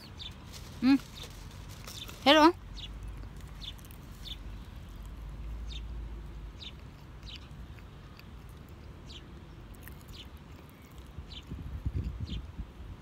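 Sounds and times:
small bird chirping: 0.0s - 12.6s.

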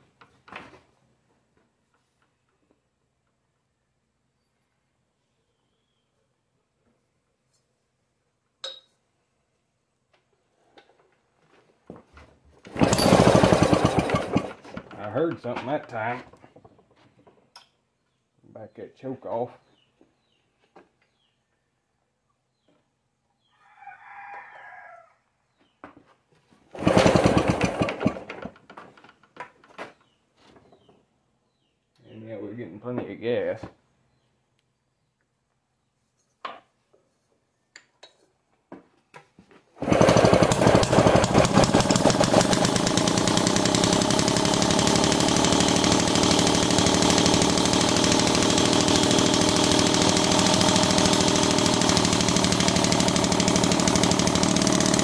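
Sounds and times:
rapid engine cranking: 12.7s - 14.6s, 26.7s - 28.5s, 39.8s - 55.0s
rooster crowing: 23.5s - 25.3s.

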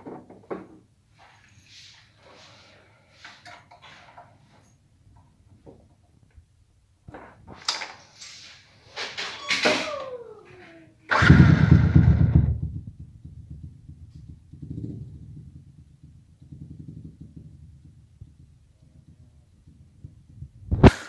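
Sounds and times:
motorcycle engine revving and idling: 11.1s - 17.5s.

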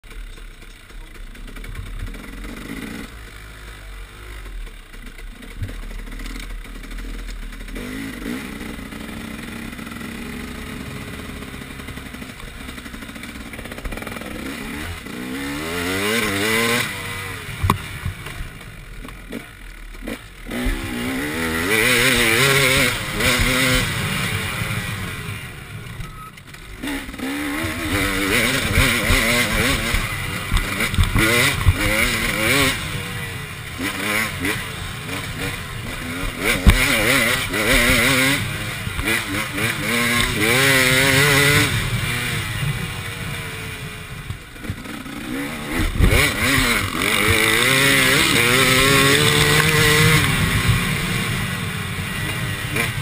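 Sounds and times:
dirt bike engine revving: 0.1s - 53.0s
sharp knocks from bike: 17.6s - 19.4s, 36.2s - 38.2s, 45.7s - 47.6s.

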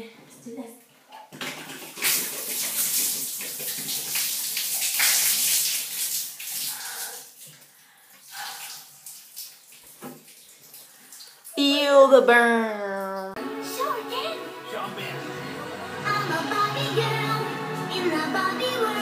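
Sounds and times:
water splashing on tiled floor: 1.4s - 11.6s.

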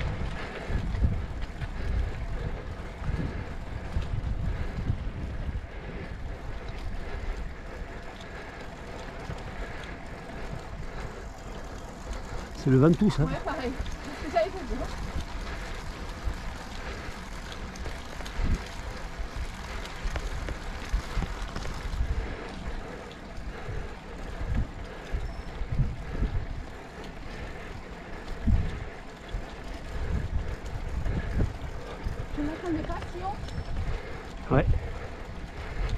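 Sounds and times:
wind noise on microphone: 0.0s - 7.8s, 14.7s - 22.7s, 23.5s - 26.8s, 28.2s - 35.9s.

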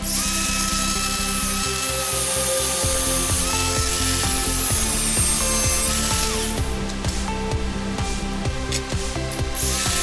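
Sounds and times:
angle grinder grinding steel: 0.0s - 6.7s, 9.5s - 10.0s.

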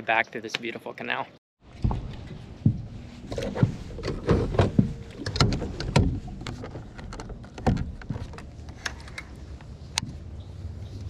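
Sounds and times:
knocks and thumps of gear on boat: 1.7s - 9.2s.

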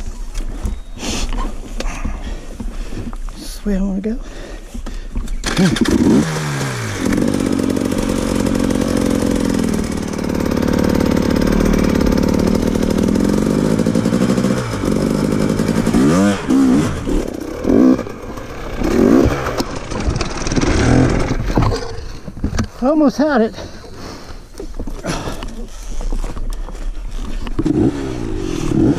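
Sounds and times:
dirt bike engine revving: 5.4s - 22.2s, 27.6s - 28.9s.

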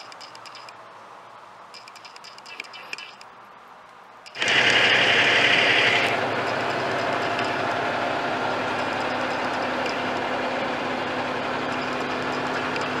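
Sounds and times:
diesel truck idling: 4.4s - 13.0s.

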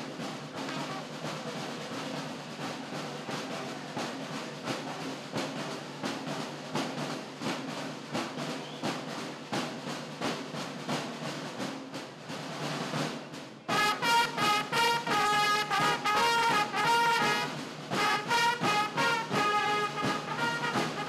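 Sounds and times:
drums beating march rhythm: 0.0s - 21.0s
trumpets playing fanfare: 13.7s - 21.0s.

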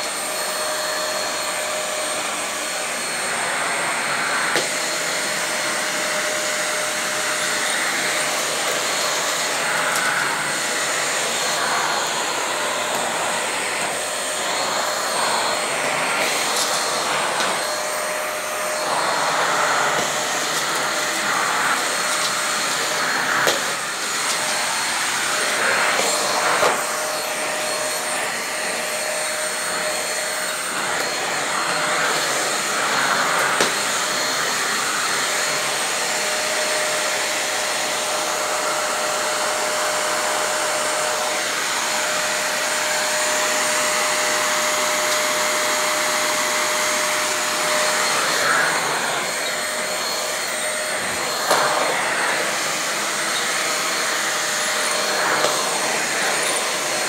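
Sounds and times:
vacuum cleaner running: 0.0s - 57.0s.

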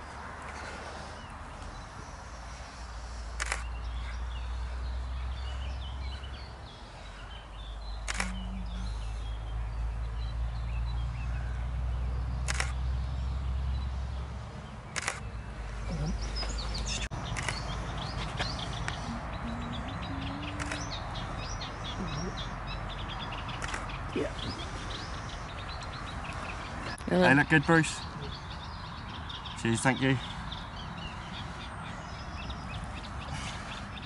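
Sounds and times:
birds chirping: 0.0s - 34.0s
camera shutter clicking: 3.4s - 3.7s, 8.1s - 8.4s, 12.5s - 12.8s, 15.0s - 15.2s, 20.6s - 20.9s.

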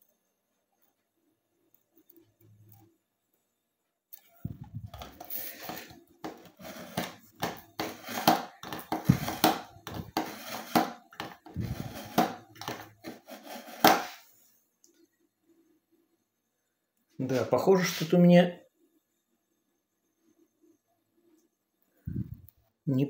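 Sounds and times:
scissor blade scraping on sharpener: 5.7s - 7.2s, 7.8s - 11.0s, 11.6s - 14.2s.

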